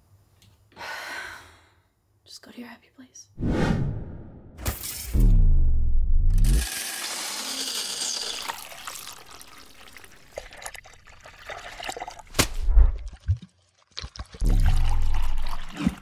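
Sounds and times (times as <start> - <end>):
coffee beans pouring into paper cup: 6.6 - 12.2
drips and light splashes: 8.5 - 16.0.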